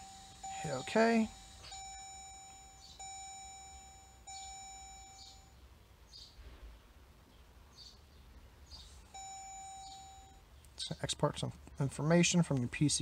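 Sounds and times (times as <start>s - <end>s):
faint high chirps: 0.0s - 5.6s, 8.7s - 10.9s
warning chime: 0.0s - 5.6s, 9.1s - 10.5s.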